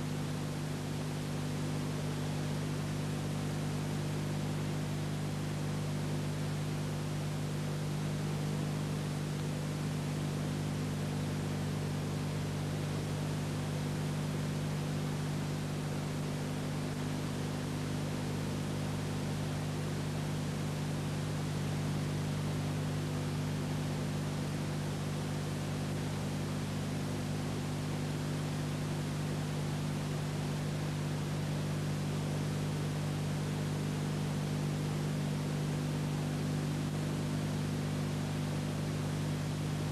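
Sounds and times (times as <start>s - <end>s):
low electrical hum: 0.0s - 39.9s.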